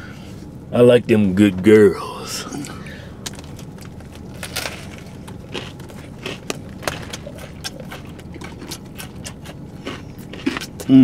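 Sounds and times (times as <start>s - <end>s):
steady low hum: 0.0s - 11.0s
short crunches of chewing: 3.6s - 11.0s.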